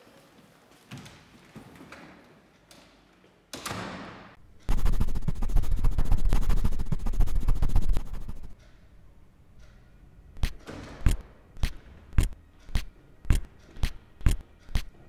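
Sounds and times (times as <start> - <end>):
electric crackling: 4.7 - 8.6
short whoosh: 4.7 - 8.6.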